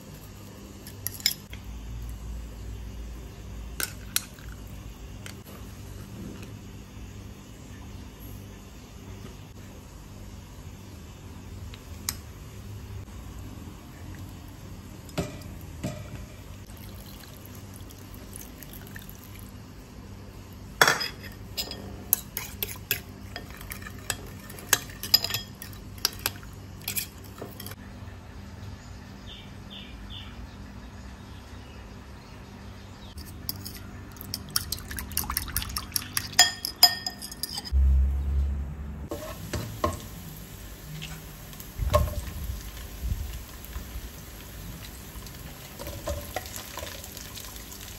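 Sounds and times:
spoon scraping ceramic bowl: 21.0s - 27.8s, 33.2s - 37.8s.

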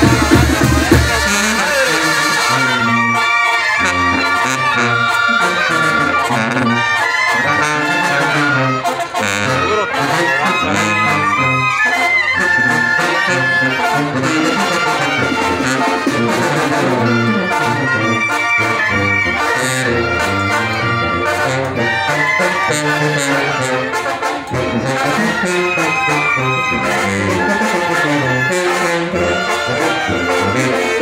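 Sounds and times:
drum beats: 0.0s - 2.7s, 14.3s - 18.4s
sousaphone bass line: 0.0s - 23.8s
brass band playing: 0.0s - 31.0s.

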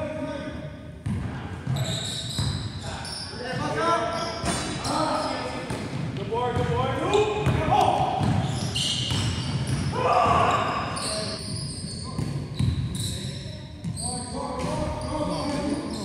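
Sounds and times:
players' voices: 0.0s - 16.0s
basketball bouncing on gym floor: 1.0s - 2.7s, 5.7s - 10.7s, 11.9s - 12.9s
sneaker squeaks: 1.6s - 6.0s, 7.0s - 16.0s.

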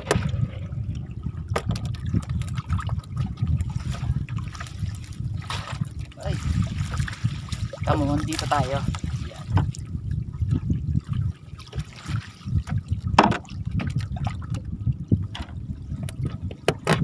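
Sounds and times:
low steady rumble: 0.0s - 17.0s
water lapping and splashing: 0.0s - 17.0s
short wet splashes and knocks: 1.5s - 9.8s, 11.0s - 14.6s.

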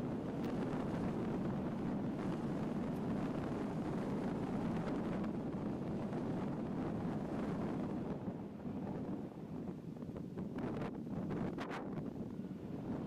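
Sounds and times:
car tyres and engine rumble: 0.0s - 13.0s
gravel ticks: 0.4s - 0.7s.

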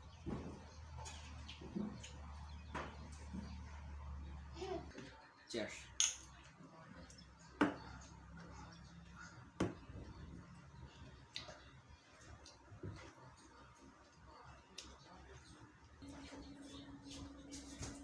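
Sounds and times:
mugs knocking on table: 7.6s - 7.9s, 9.6s - 10.1s.

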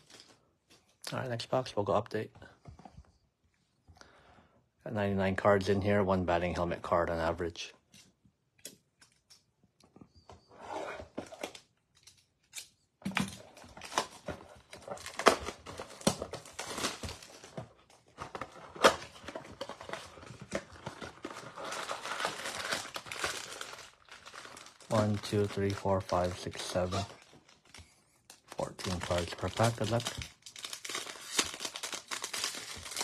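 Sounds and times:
plastic wrap crinkling and tearing: 13.6s - 33.0s.

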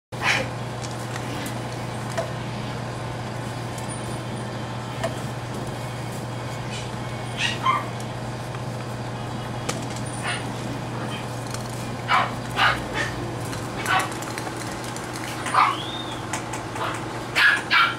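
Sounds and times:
steady low hum: 0.2s - 17.9s
puppies yelping: 6.6s - 8.1s, 10.0s - 11.4s, 12.0s - 17.9s.

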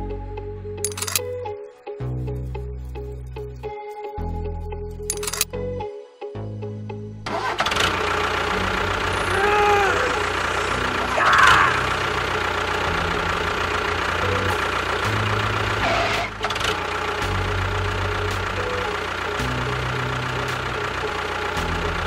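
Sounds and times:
short pitched sounds: 7.3s - 21.6s.

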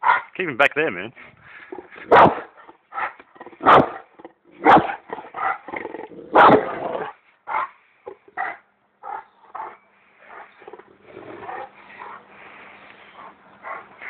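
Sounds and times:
large dog barking: 0.0s - 0.3s, 1.9s - 7.8s, 13.2s - 13.9s.

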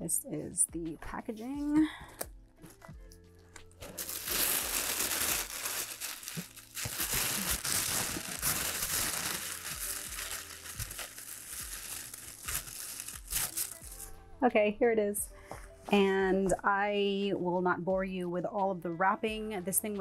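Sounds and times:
tissue paper rustling: 3.8s - 14.1s.

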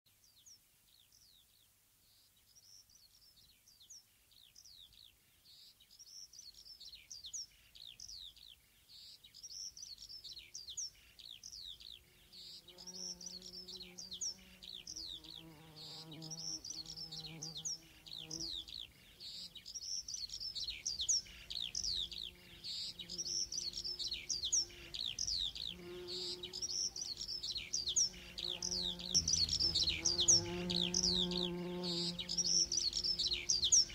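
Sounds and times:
birds chirping: 9.4s - 33.9s
fly buzzing: 12.8s - 18.6s, 25.6s - 27.1s, 27.8s - 33.9s.

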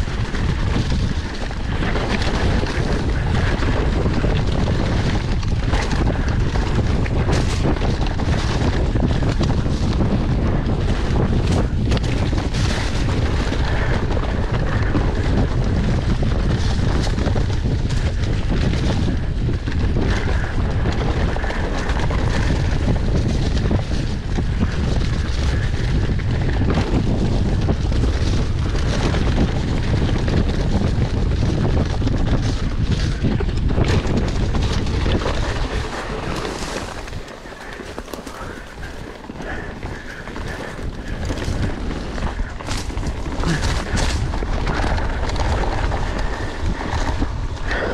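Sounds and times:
bike knocking and rattling: 0.0s - 47.9s
tyres rumbling on dirt: 0.0s - 47.9s
wind buffeting microphone: 0.0s - 47.9s.

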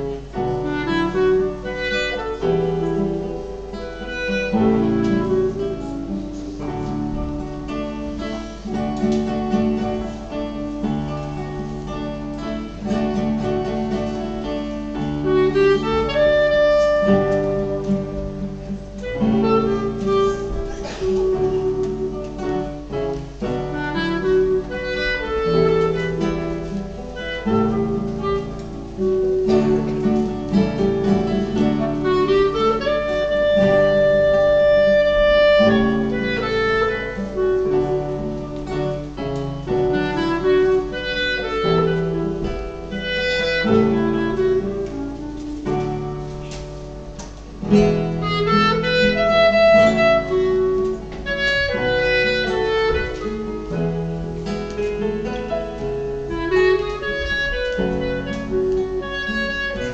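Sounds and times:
classical guitars playing: 0.0s - 59.9s
wind instrument holding notes: 0.0s - 59.9s.

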